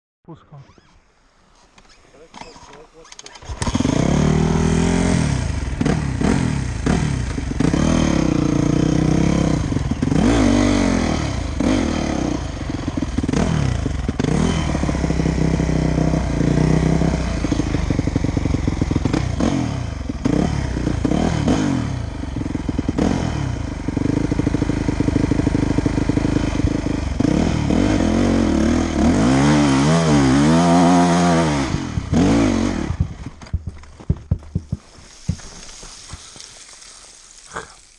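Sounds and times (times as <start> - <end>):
dirt bike engine revving: 2.4 - 37.8
bike knocks and rattles: 26.2 - 27.2, 32.0 - 36.7.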